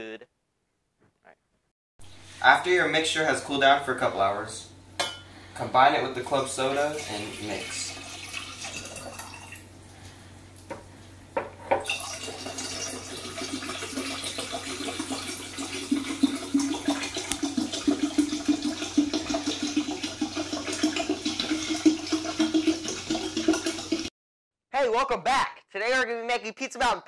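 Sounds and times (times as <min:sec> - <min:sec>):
soda fizzing pour into pitcher: 0:06.3 - 0:09.7, 0:11.8 - 0:24.1.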